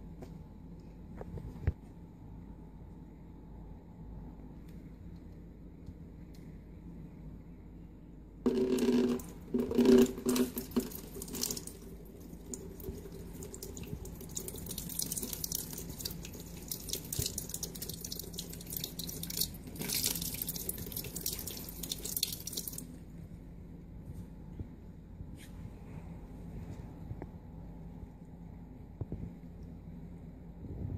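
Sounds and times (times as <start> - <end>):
water trickling and dripping: 8.8 - 22.9.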